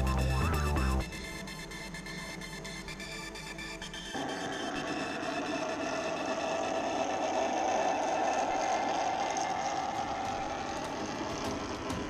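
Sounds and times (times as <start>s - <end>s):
model train motor hum: 4.2s - 12.0s
wheels rumbling on rails: 4.2s - 12.0s.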